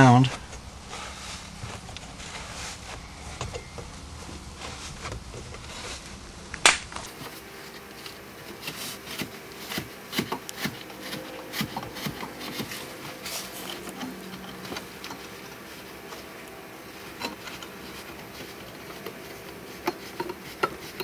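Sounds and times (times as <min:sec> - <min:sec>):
sharp loud click: 0:06.6 - 0:07.1.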